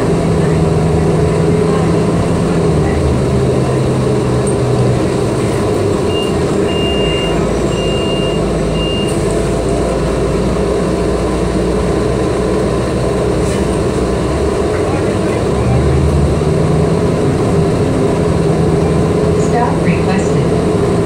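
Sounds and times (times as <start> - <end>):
bus engine rumble: 0.0 - 21.0
road noise: 0.0 - 21.0.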